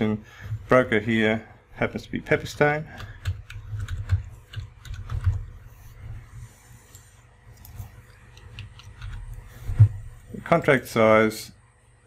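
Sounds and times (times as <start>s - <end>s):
keyboard keystrokes: 2.9s - 5.5s.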